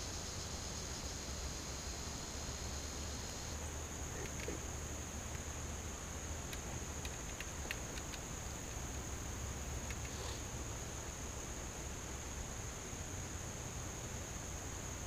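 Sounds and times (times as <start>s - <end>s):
insects chirring: 0.0s - 15.0s
faint clicks: 4.1s - 4.6s, 6.4s - 8.8s, 9.8s - 10.4s.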